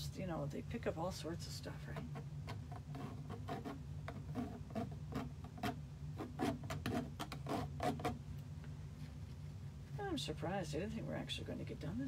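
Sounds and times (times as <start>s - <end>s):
feather tapping and scraping canvas: 1.9s - 8.2s.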